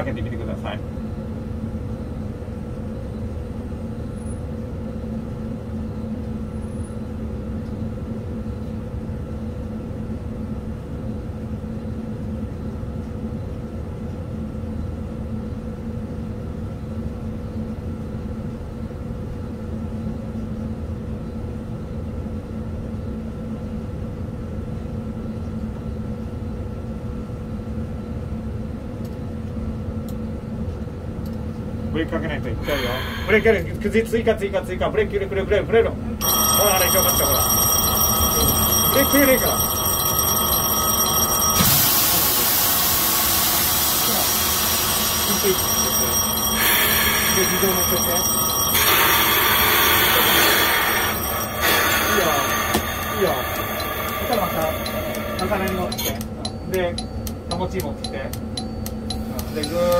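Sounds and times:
locomotive cab hum: 0:31.3 - 0:59.9.

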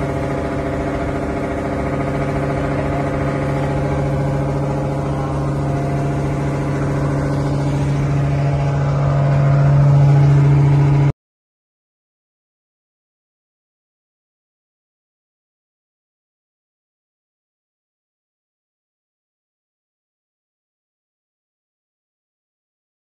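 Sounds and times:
boat engine running: 0:00.0 - 0:11.2.

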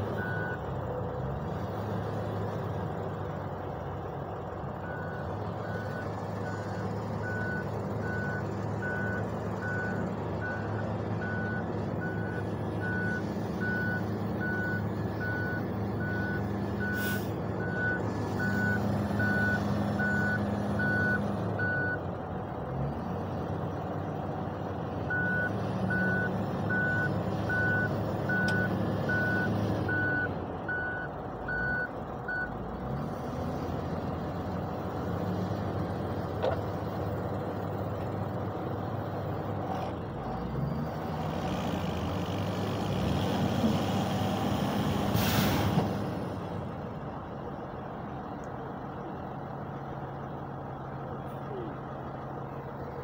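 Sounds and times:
heavy diesel engines running: 0:00.0 - 0:53.0
reversing alarm beeping: 0:00.2 - 0:00.6, 0:04.8 - 0:22.0, 0:25.1 - 0:32.5.

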